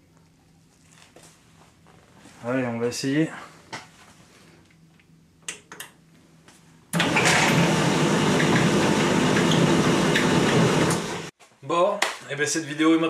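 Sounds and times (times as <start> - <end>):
tumble dryer running: 7.0 - 11.3.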